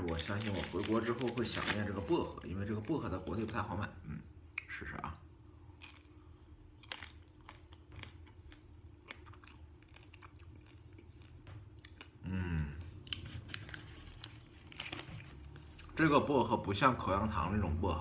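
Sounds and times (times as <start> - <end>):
chocolate shell crunching: 0.0 - 3.7
person humming: 12.2 - 12.9.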